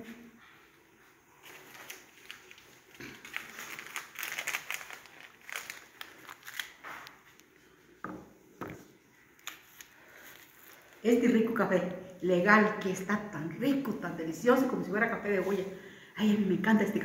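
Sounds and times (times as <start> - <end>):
crunching and crinkling: 1.4 - 7.6, 9.4 - 11.1.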